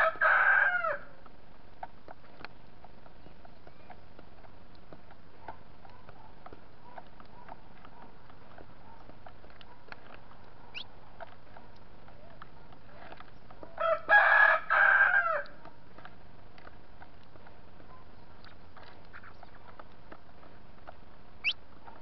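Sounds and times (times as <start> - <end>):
rooster crowing: 0.0 - 1.2, 13.8 - 15.6
birds pecking at feeder: 0.2 - 22.0.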